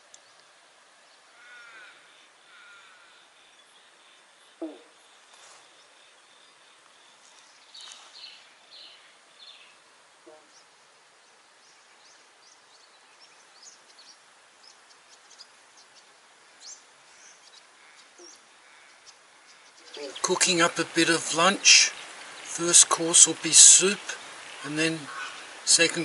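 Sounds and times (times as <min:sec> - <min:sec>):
bird calls and chirps: 0:02.5 - 0:20.6.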